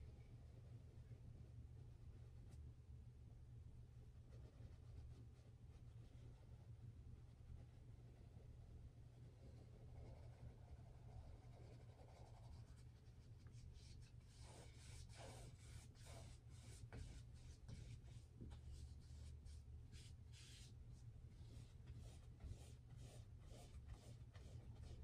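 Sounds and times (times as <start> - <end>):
steady low hum: 0.0 - 25.0
paintbrush swishing on canvas: 13.5 - 20.8.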